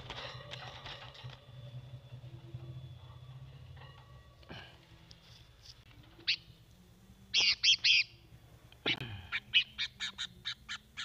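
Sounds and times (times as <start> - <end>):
bird harsh calls: 7.4 - 8.2, 8.8 - 11.0.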